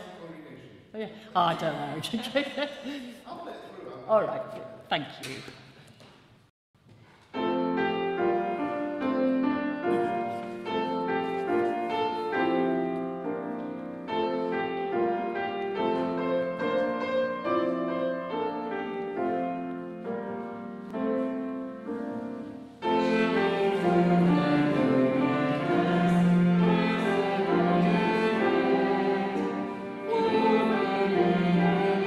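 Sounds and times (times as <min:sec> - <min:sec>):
hymn tune on piano: 0:07.4 - 0:32.0.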